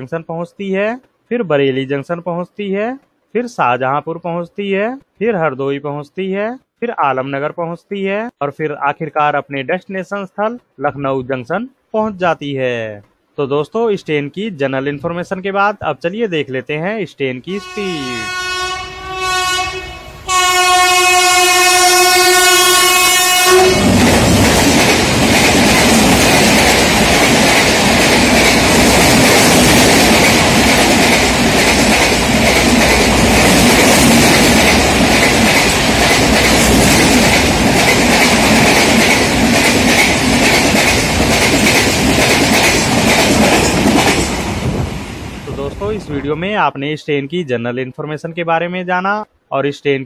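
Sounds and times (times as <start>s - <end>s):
train horn blast: 17.6s - 24.0s
train rushing past: 17.6s - 46.4s
wheels clattering over rails: 23.8s - 44.8s.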